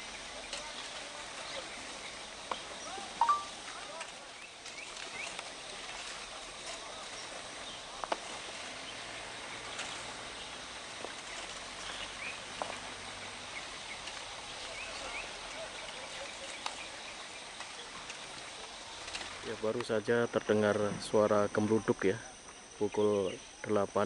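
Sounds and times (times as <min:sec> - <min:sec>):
steady outdoor hiss: 0:00.0 - 0:24.0
bird chirps: 0:01.4 - 0:03.6.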